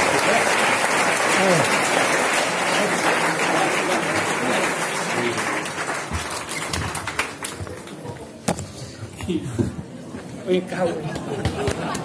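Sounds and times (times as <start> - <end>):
audience applause: 0.0 - 8.2, 11.2 - 12.0.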